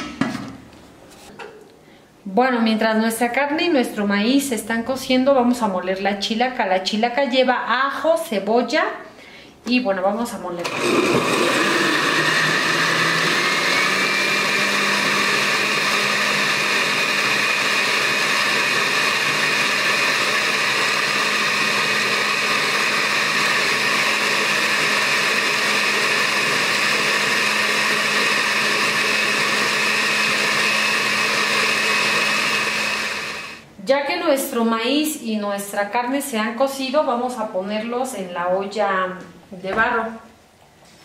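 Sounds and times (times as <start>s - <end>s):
blender running on high: 10.6s - 33.6s.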